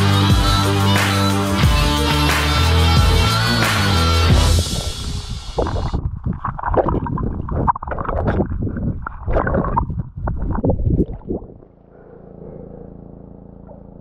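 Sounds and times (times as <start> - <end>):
water churning underwater: 4.5 - 11.8
boat steady drone: 11.6 - 14.0.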